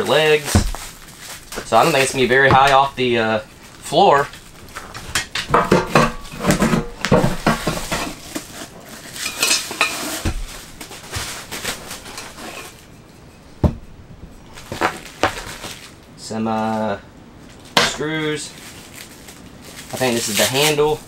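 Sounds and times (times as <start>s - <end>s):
wrapping rustling: 0.0s - 13.4s, 14.3s - 21.0s
metal stove parts clanking: 4.8s - 11.0s.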